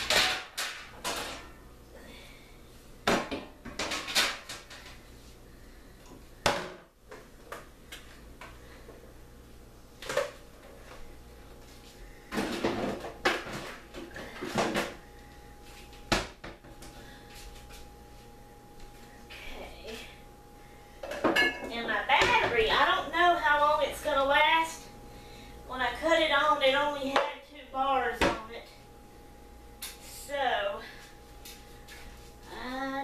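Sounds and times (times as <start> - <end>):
dishes being set down: 21.0 - 22.5.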